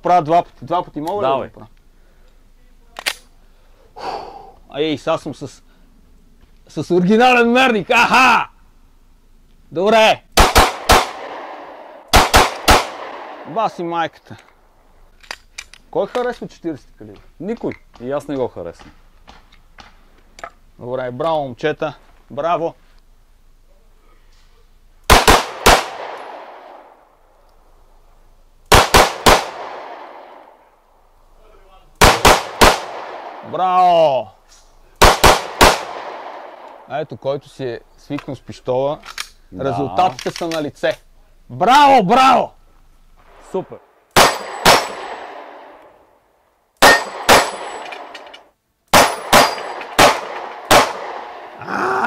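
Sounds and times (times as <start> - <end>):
pistol shots echoing: 10.4 - 13.6, 25.1 - 26.9, 28.7 - 30.5, 32.0 - 33.5, 35.0 - 36.7, 44.1 - 45.8, 46.8 - 48.1, 48.9 - 51.6
pistol shots with metallic ring: 44.2 - 45.5, 46.8 - 48.3, 48.9 - 51.0.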